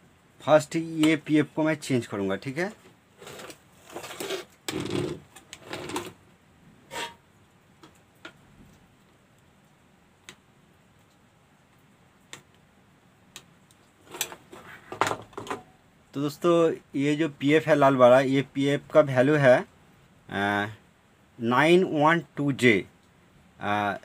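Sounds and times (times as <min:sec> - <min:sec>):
circuit board rustling and clattering: 0:02.8 - 0:06.2, 0:13.8 - 0:15.7.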